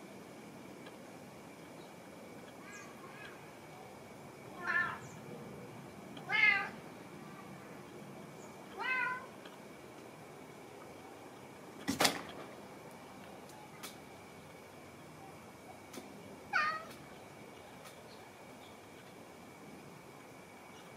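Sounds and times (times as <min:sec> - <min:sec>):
cat meowing: 0:04.6 - 0:05.0, 0:08.8 - 0:09.3, 0:16.5 - 0:16.9.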